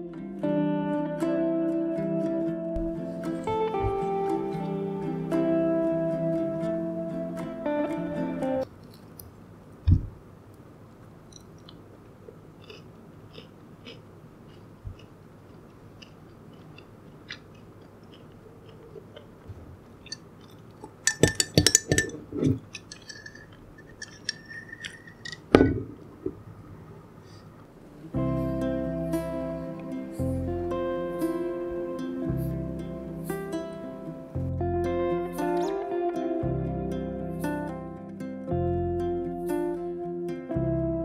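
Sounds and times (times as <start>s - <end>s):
pastry tearing and chewing: 12.6s - 19.4s.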